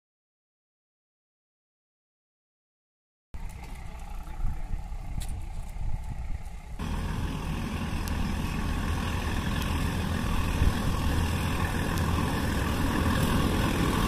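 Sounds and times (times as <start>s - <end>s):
diesel locomotive engine drone: 3.4s - 14.0s.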